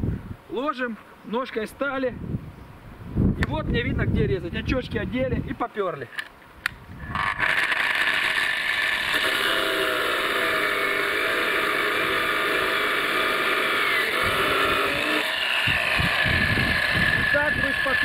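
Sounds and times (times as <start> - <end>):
angle grinder cutting steel: 7.0 - 18.0.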